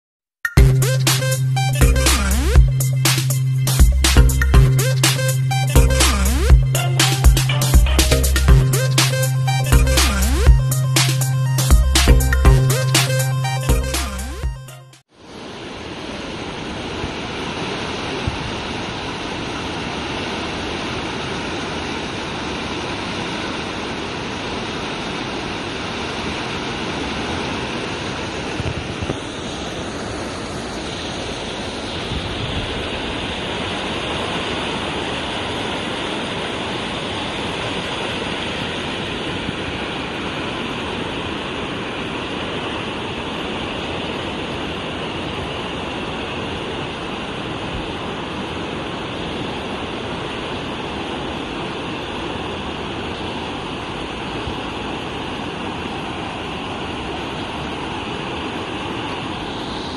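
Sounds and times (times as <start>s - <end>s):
river rushing: 15.2s - 59.9s.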